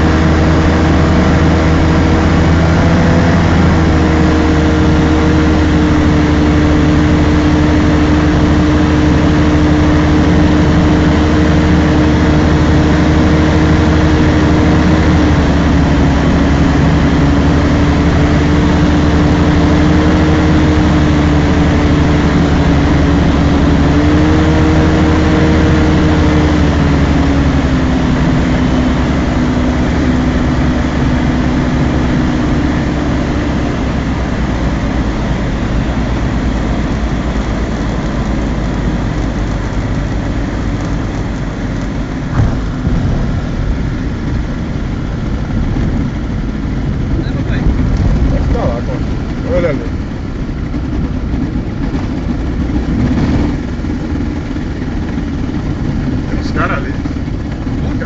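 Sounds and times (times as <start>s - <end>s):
propeller engine droning: 0.0s - 58.0s
rush of airflow: 39.8s - 58.0s.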